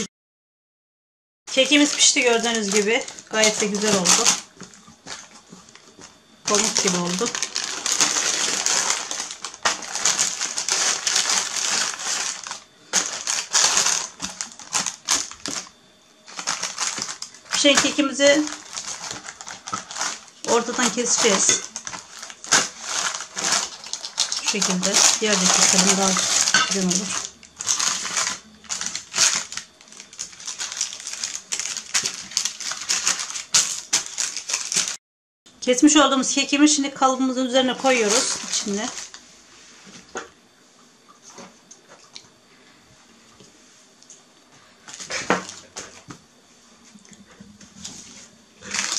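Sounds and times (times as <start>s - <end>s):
baking paper crinkling: 1.5s - 35.0s, 37.5s - 40.1s, 44.8s - 46.1s, 47.6s - 48.9s.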